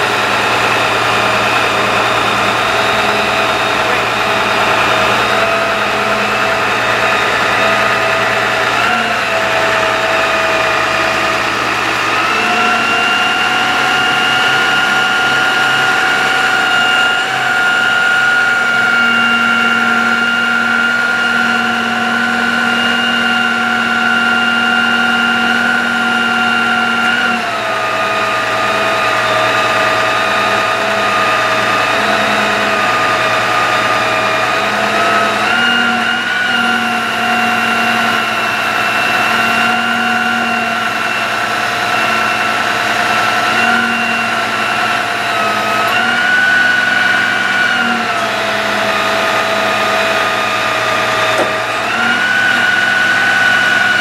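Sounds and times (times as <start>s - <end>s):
hydraulic whine: 0.0s - 54.0s
truck engine running: 0.0s - 54.0s.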